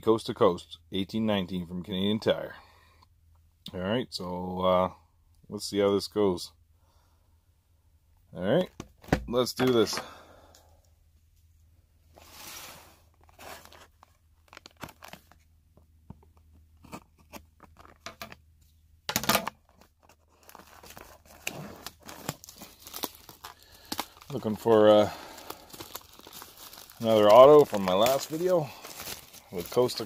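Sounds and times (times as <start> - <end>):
plastic wrap crinkling: 12.2 - 15.5, 19.7 - 30.0
plastic wrap ripping: 14.4 - 15.4, 20.0 - 30.0.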